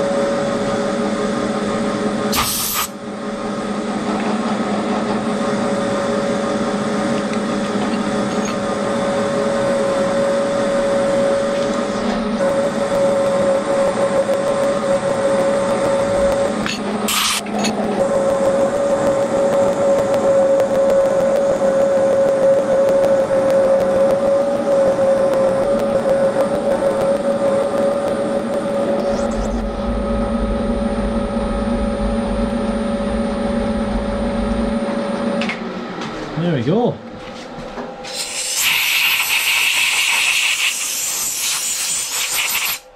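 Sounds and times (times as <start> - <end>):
milling machine cutting metal: 3.6 - 30.1
low rumble: 28.5 - 35.8.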